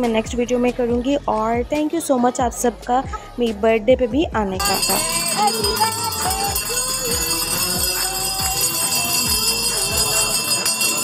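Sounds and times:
background music with beat: 0.0s - 11.0s
jingling percussion: 4.6s - 11.0s.

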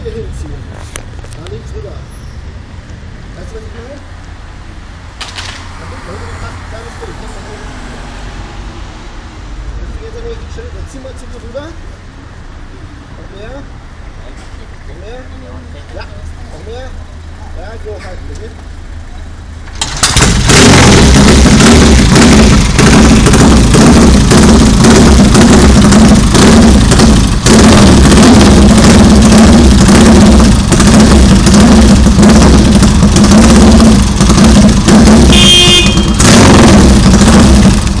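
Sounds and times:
motorcycle engine running rough: 19.7s - 38.0s.

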